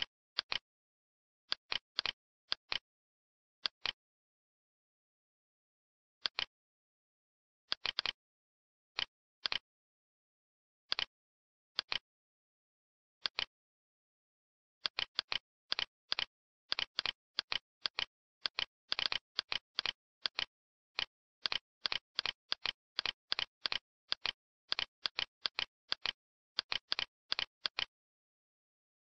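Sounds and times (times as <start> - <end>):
computer mouse clicking: 0.4 - 0.6, 1.5 - 2.9, 3.6 - 4.0, 6.2 - 6.5, 7.7 - 8.2, 9.0 - 9.6, 10.9 - 11.1, 11.8 - 12.1, 13.2 - 13.5, 14.8 - 28.0.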